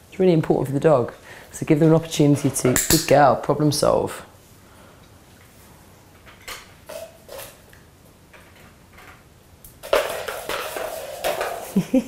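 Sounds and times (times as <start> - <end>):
dog scuffling on tiled floor: 9.8 - 12.0.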